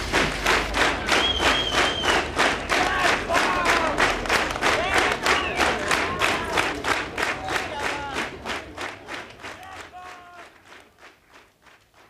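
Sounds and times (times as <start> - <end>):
crowd clapping in time: 0.0 - 12.0
crowd shouting: 2.8 - 4.0.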